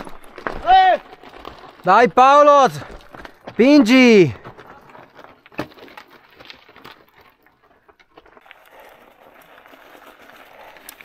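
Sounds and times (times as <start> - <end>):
snow crunching under tyres and boots: 0.0 - 11.0.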